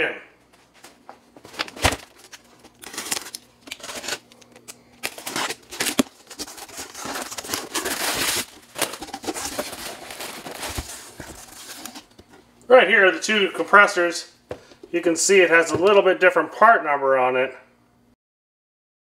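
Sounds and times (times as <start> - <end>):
packaging rustling and crinkling: 0.7 - 12.4.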